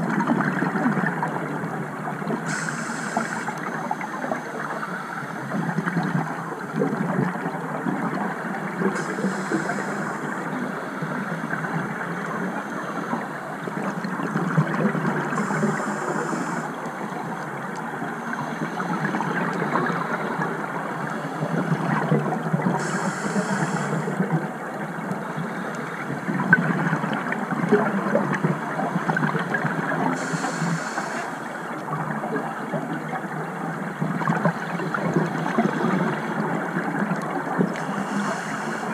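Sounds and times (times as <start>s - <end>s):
short hiss: 2.5s - 3.6s, 9.0s - 10.4s, 30.2s - 31.4s
underwater regulator breathing: 2.5s - 3.6s, 9.0s - 10.9s, 15.4s - 16.8s, 30.2s - 31.5s, 37.7s - 38.9s.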